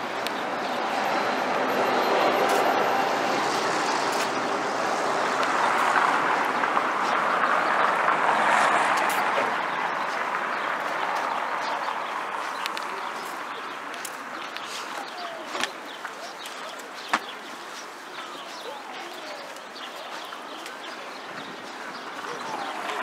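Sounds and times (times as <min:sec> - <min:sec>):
vehicle passing: 0:00.4 - 0:13.7.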